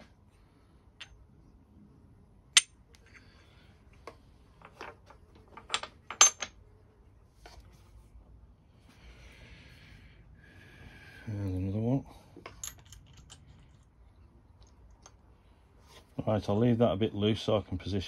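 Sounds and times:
small metal parts clinking: 4.6s - 6.6s, 12.4s - 14.0s.

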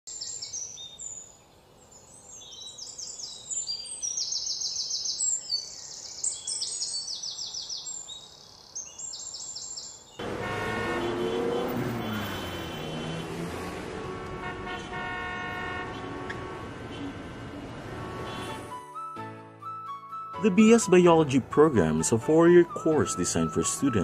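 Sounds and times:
birds chirping and trilling: 0.1s - 10.4s
street traffic: 10.2s - 18.8s
vehicle horn tooting: 10.2s - 18.8s.

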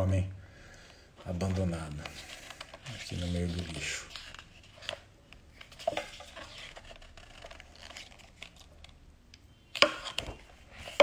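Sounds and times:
book pages rustling: 1.3s - 9.0s.

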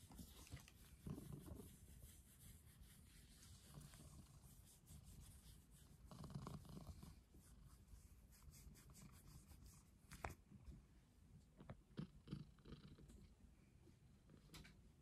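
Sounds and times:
fingers scratching cat fur: 0.0s - 10.4s.

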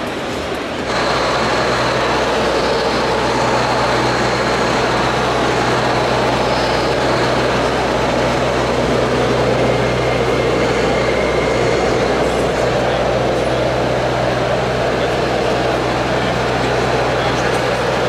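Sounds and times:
hall background noise: 0.0s - 18.0s
low diesel engine drone: 0.0s - 18.0s.

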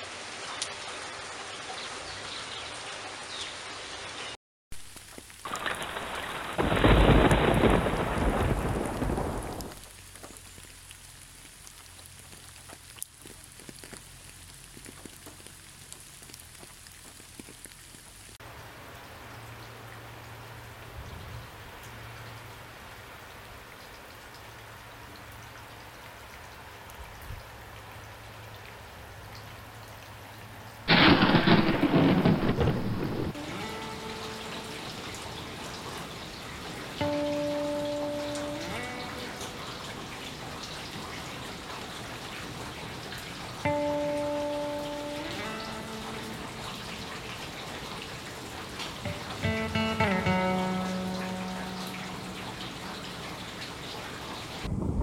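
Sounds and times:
light rain pattering: 0.0s - 55.0s
thunder rumbling: 5.5s - 9.9s, 30.9s - 33.8s, 54.6s - 55.0s.

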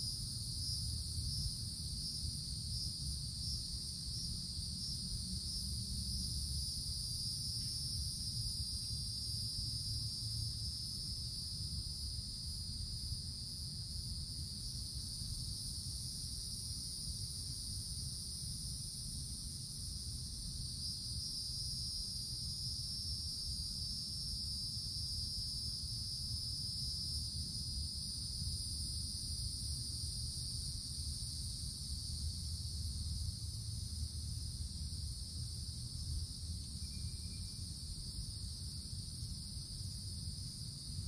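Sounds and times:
cicadas buzzing: 35.6s - 41.0s.

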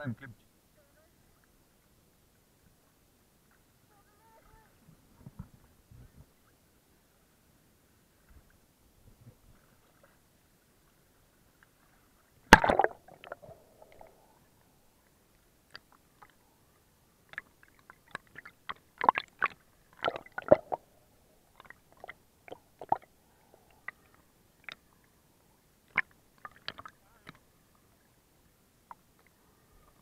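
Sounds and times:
water splashing and sloshing: 10.8s - 16.4s, 17.2s - 24.8s, 25.8s - 28.0s.

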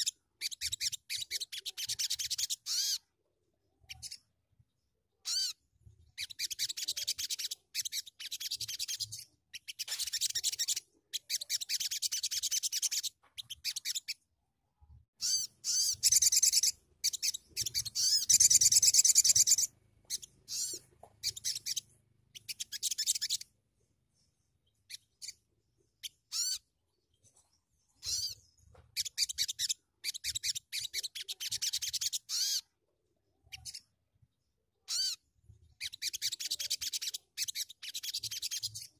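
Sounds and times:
sunbird twittering: 15.2s - 23.5s.

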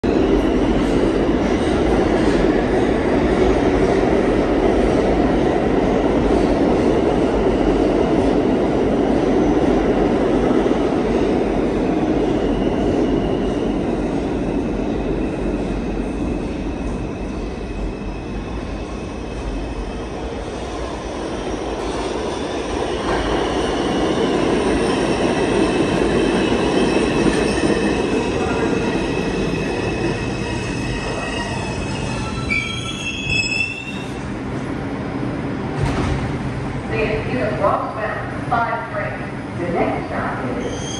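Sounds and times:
subway train rumble: 0.0s - 40.9s
high-pitched wheel squeal: 30.3s - 34.2s, 40.6s - 40.9s.

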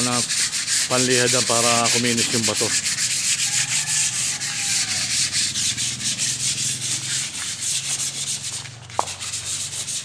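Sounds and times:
sandpaper scratching on concrete: 0.0s - 10.0s.

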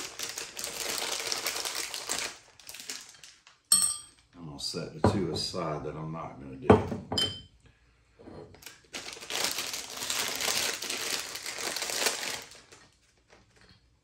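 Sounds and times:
plastic bag crinkling: 0.0s - 3.7s, 8.6s - 13.6s
glass bottle clinking down: 3.7s - 4.2s, 6.7s - 7.5s.

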